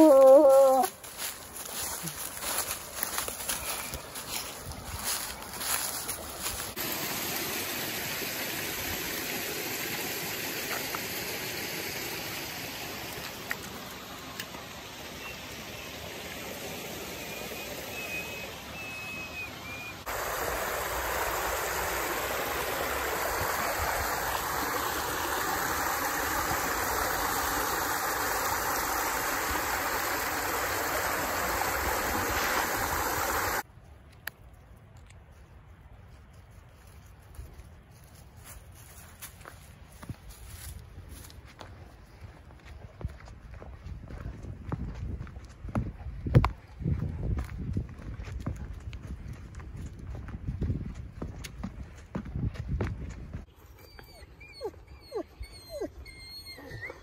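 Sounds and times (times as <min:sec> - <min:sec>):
rushing stream water: 0:00.0 - 0:33.7.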